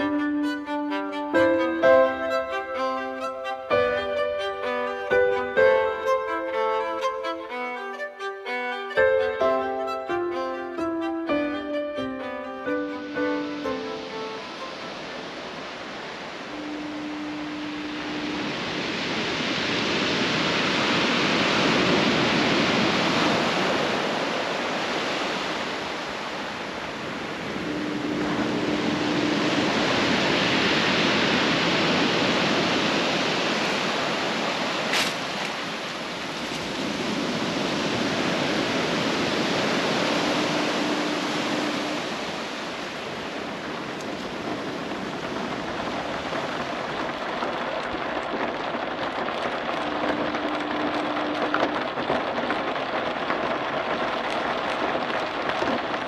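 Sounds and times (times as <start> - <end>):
low foghorn: 0.0 - 26.0, 27.0 - 34.6, 37.4 - 46.6, 49.2 - 52.8
surf breaking on cobblestones: 0.0 - 56.0.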